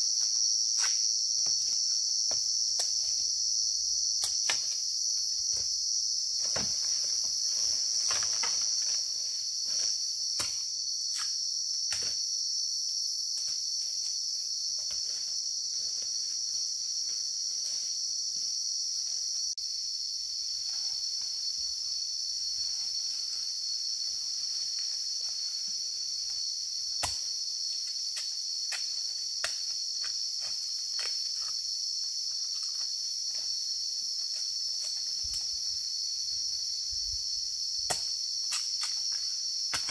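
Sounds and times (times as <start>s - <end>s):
insect chorus drone: 0.0s - 39.9s
clicks and snaps in undergrowth: 37.8s - 39.9s.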